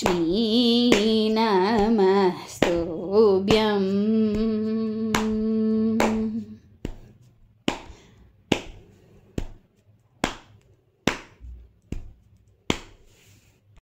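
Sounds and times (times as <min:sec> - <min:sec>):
hand striking rhythm: 0:00.0 - 0:13.0.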